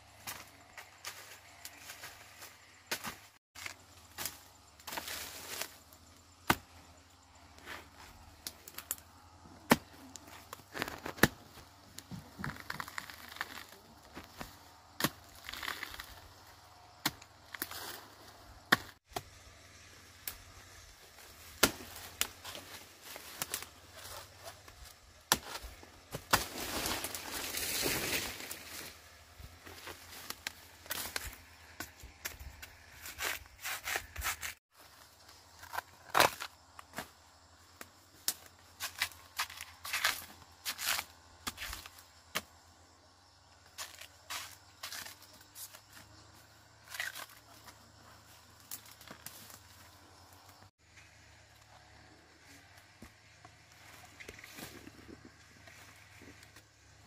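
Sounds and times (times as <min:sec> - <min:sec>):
sharp knocks and cracks: 0:21.6 - 0:22.4.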